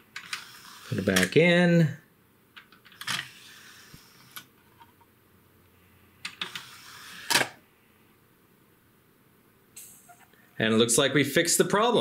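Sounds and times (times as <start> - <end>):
faint motor whir: 0.2 - 1.3, 3.0 - 4.5, 5.8 - 7.6.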